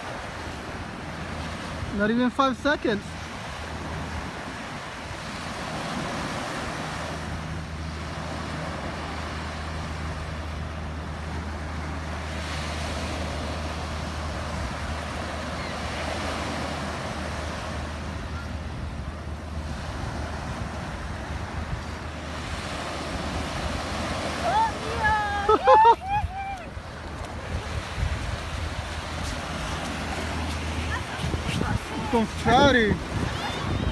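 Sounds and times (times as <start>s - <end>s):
small waves breaking on beach: 0.0s - 33.9s
wind on microphone: 12.6s - 33.9s.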